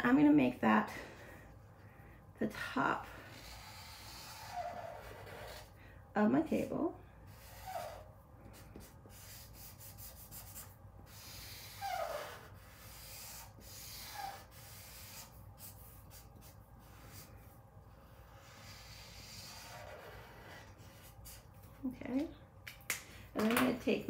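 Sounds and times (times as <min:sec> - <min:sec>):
marker rubbing on paper: 0:03.1 - 0:05.8, 0:07.3 - 0:21.7.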